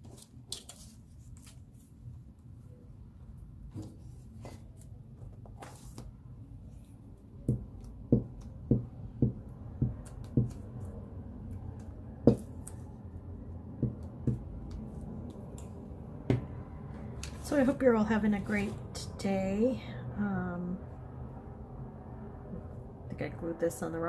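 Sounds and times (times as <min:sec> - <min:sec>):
paper rustling: 0:00.0 - 0:02.0
low steady hum: 0:00.0 - 0:24.0
glue stick knocking on tabletop: 0:07.5 - 0:10.6, 0:12.2 - 0:12.5, 0:13.8 - 0:14.5.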